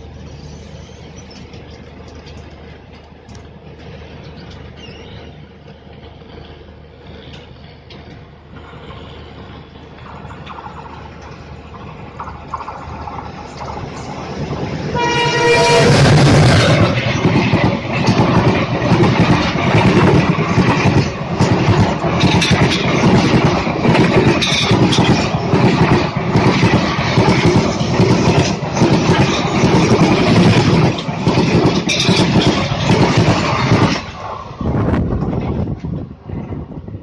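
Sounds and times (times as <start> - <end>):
train passing at speed: 0.0 - 37.0
wheels clattering over rails: 1.3 - 36.6.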